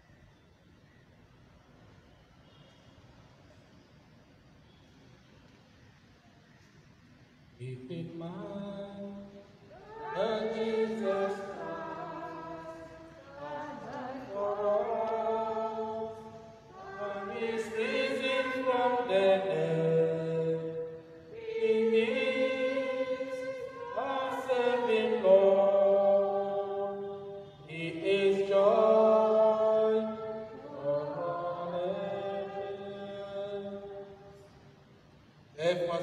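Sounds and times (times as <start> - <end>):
choir chanting: 9.7 - 34.4.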